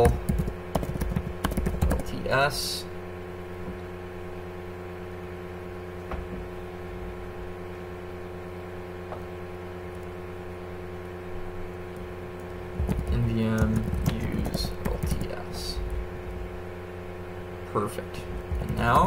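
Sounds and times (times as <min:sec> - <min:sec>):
electrical hum: 0:00.0 - 0:19.0.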